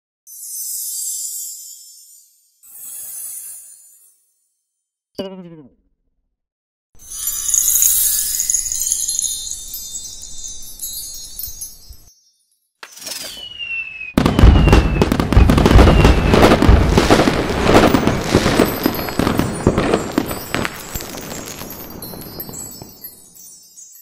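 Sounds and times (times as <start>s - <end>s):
high chime tinkles: 0.3s - 4.4s, 7.0s - 13.7s, 17.9s - 24.0s
firework bang and crackling: 12.9s - 23.4s
firework whistle falling: 13.0s - 22.9s.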